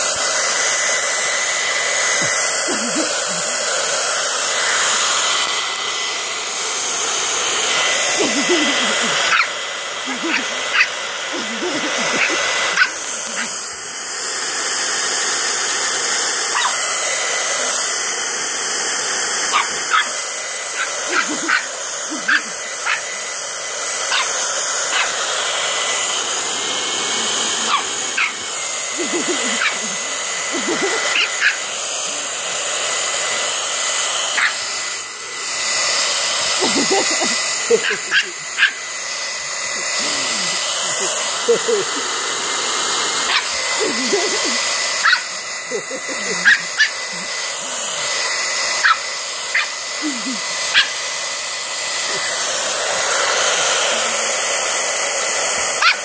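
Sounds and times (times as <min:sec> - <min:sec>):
hair dryer blowing: 0:00.0 - 0:56.0
puppy barking and yapping: 0:09.3 - 0:11.0, 0:12.1 - 0:13.6, 0:16.5 - 0:16.9, 0:19.5 - 0:23.2, 0:24.0 - 0:25.3, 0:27.6 - 0:28.5, 0:29.4 - 0:30.0, 0:31.0 - 0:31.7, 0:34.3 - 0:34.7, 0:37.7 - 0:38.9, 0:43.2 - 0:43.6, 0:45.0 - 0:45.4, 0:46.4 - 0:47.4, 0:48.2 - 0:49.8, 0:50.7 - 0:51.0, 0:55.8 - 0:56.0.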